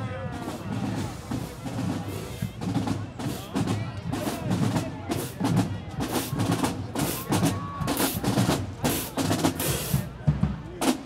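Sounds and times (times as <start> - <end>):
faint crowd voices: 0.0 - 11.0
snare drum strokes: 0.4 - 11.0.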